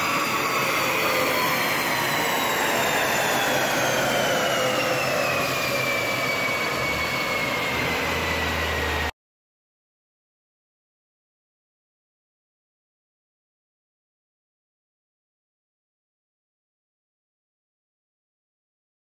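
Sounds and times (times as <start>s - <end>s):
cooling fan rushing: 0.0s - 9.1s
drivetrain whine winding down: 0.0s - 9.1s.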